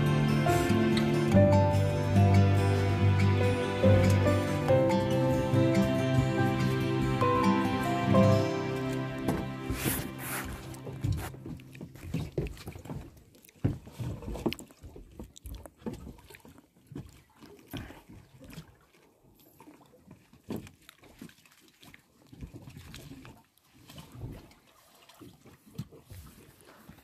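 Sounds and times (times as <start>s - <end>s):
inflatable dinghy knocking: 8.1s - 15.1s.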